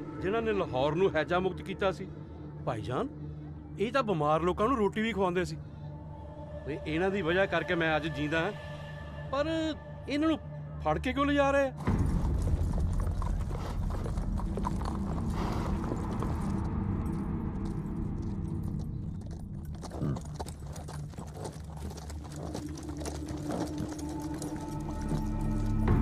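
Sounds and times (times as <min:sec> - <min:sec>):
horse hooves clip-clopping: 0:11.8 - 0:26.0.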